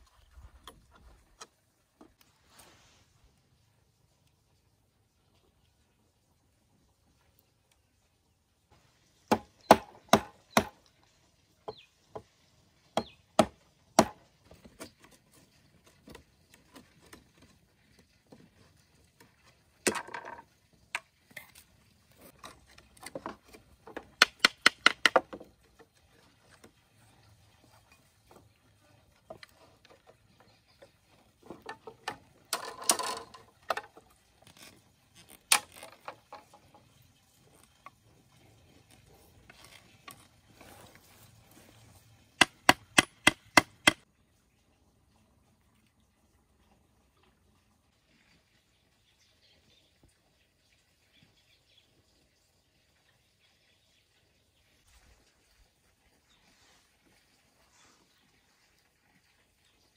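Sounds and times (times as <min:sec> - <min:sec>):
machete chopping wooden stick: 0:09.3 - 0:10.8, 0:13.0 - 0:14.2, 0:42.4 - 0:44.0.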